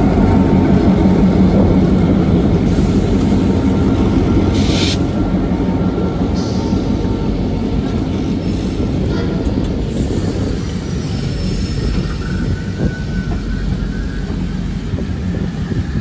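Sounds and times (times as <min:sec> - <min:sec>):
diesel locomotive rumble: 0:00.0 - 0:16.0
brief hiss: 0:04.6 - 0:05.0.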